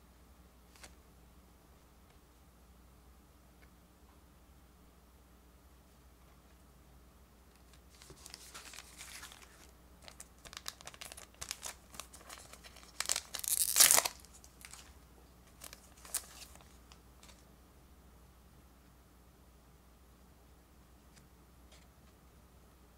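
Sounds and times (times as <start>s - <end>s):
card pack wrapper crinkling: 7.6s - 17.4s
wrapper ripping open: 7.7s - 14.9s, 15.6s - 17.4s.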